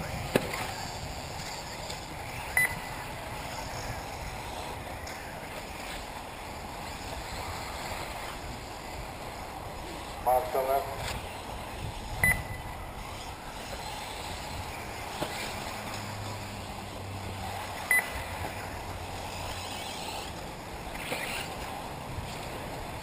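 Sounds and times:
rc cars tyres and motors hissing: 0.0 - 23.0
short electronic beeps: 2.6 - 2.9, 12.2 - 12.6, 17.9 - 18.2.

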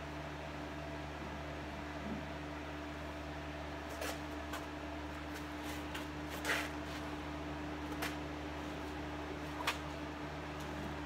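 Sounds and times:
steady low hum: 0.0 - 11.0
vinyl rustling and scraping: 3.9 - 7.2.

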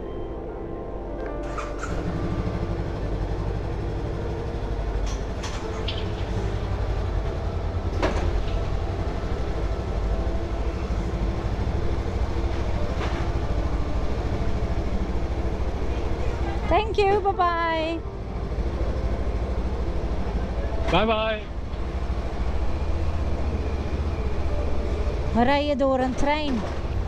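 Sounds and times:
motorcycle engine idling: 1.4 - 16.8.

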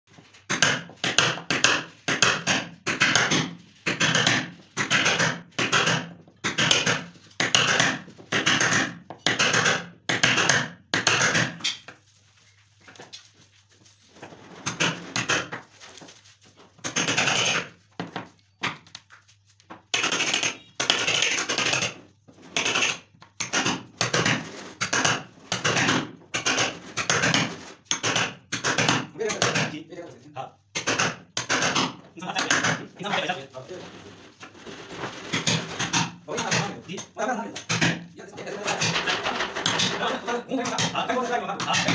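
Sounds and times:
hammer striking a chisel: 0.5 - 11.7, 19.9 - 22.0, 22.6 - 29.7, 30.7 - 32.8.

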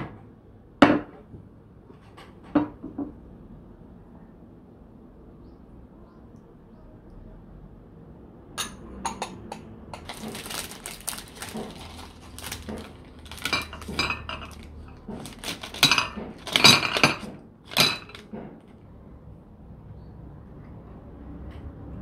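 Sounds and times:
ceramic tableware clinking: 8.6 - 10.2, 12.8 - 15.0, 15.7 - 18.3
chocolates clattering onto saucer: 10.0 - 18.3
plastic tray crinkling: 10.0 - 18.3.

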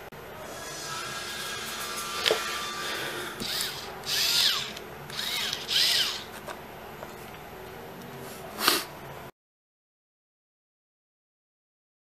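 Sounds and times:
cordless screwdriver motor whine: 1.8 - 6.4.

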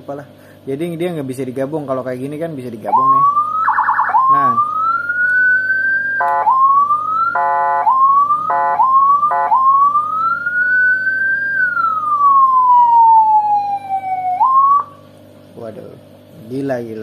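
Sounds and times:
electronic siren wailing: 2.8 - 15.2.

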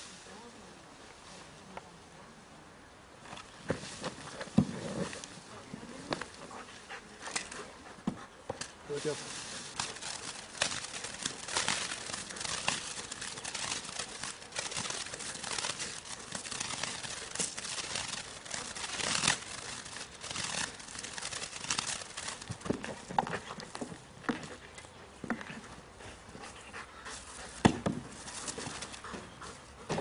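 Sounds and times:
scuffing and knocks on grass: 3.3 - 5.2, 27.2 - 29.3.

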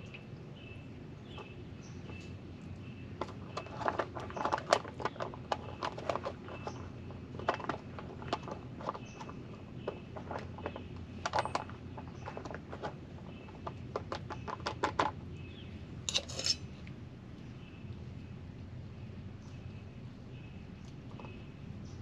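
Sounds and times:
objects clicking and knocking: 3.2 - 15.2, 16.1 - 16.6
rustling scrape: 16.1 - 16.7.

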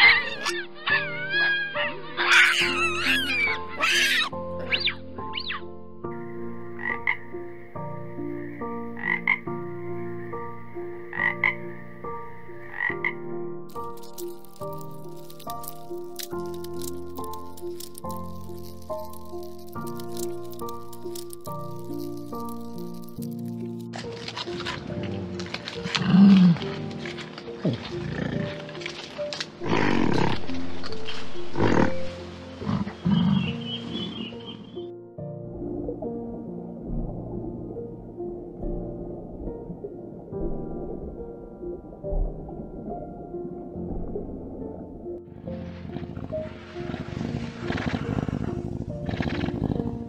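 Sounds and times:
soft background music: 0.0 - 50.0
frog croaking: 6.7 - 7.4, 8.3 - 9.6, 10.9 - 11.8, 12.6 - 23.3
animal growl: 25.8 - 26.8, 27.6 - 28.7, 29.6 - 30.5, 45.8 - 50.0
animal roaring: 29.6 - 30.5.

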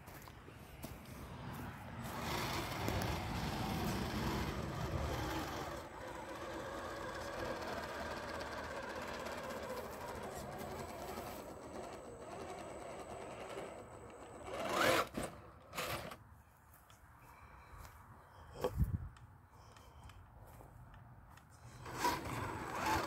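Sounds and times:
electric motor whining: 2.0 - 16.2, 21.7 - 23.0.

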